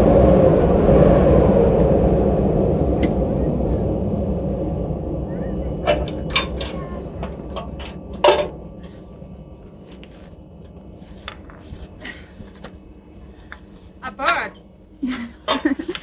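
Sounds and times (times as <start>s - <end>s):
low rumble: 0.0s - 16.0s
metal coupling clinks and knocks: 5.8s - 8.6s.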